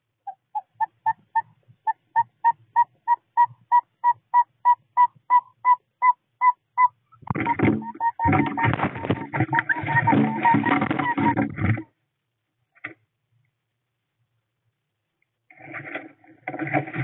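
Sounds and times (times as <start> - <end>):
owl whistled toots: 0.2 - 11.4
loud scratchy noise: 7.3 - 11.8.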